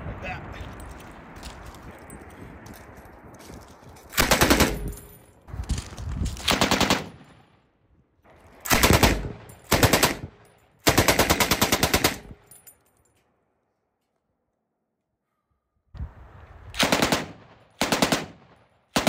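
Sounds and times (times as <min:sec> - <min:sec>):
machine gun bursts: 0:04.2 - 0:04.9.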